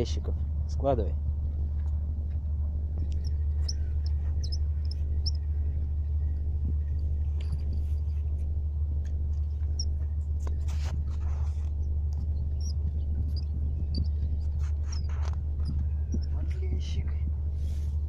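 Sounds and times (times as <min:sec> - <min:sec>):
low rumble: 0:00.0 - 0:18.0
faint high chirps: 0:03.2 - 0:05.5.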